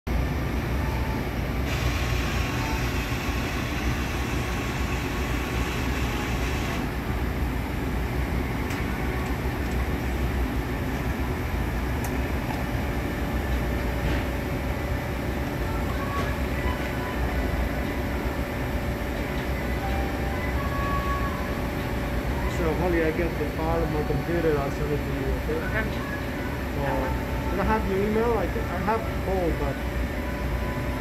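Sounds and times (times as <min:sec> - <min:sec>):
low mechanical hum: 0:00.1 - 0:31.0
coffee machine grinding: 0:01.7 - 0:06.9.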